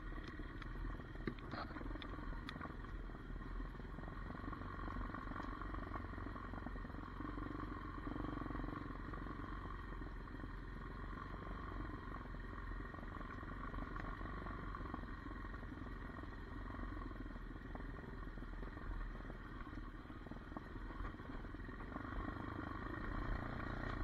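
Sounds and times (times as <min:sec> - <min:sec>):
dirt bike engine running: 0:00.0 - 0:24.0.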